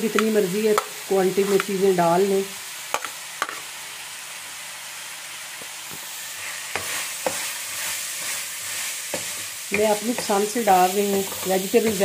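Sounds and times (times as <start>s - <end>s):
vegetables sizzling in hot oil: 0.0s - 12.0s
metal spoon scraping and stirring: 11.2s - 12.0s.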